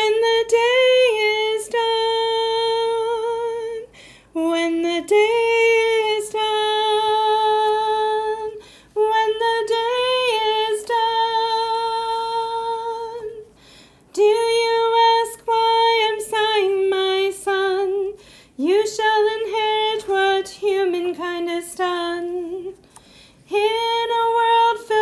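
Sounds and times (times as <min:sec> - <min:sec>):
woman singing unaccompanied: 0:00.0 - 0:22.8, 0:23.5 - 0:25.0.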